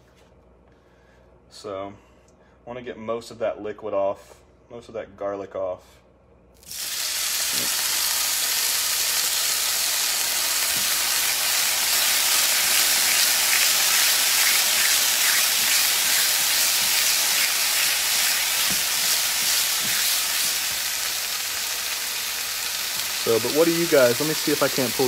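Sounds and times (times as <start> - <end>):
meat sizzling in a pan: 6.6 - 25.0.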